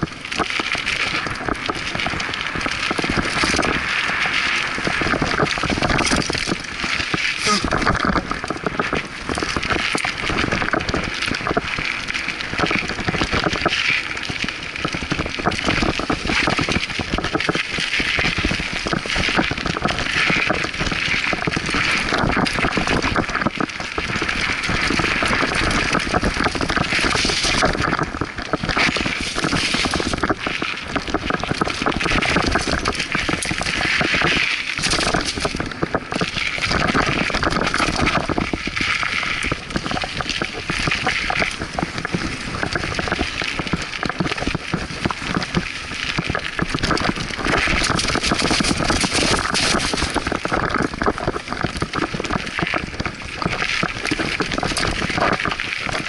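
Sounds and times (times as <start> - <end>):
bike rattling over bumps: 0.0 - 56.0
bike tyres crunching over dirt: 0.0 - 56.0.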